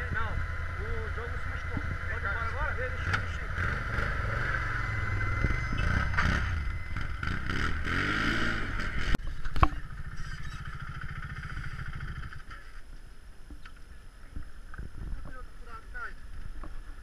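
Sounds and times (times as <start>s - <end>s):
quad bike engine revving: 0.0s - 12.7s
quad bike engine idling: 0.0s - 12.8s.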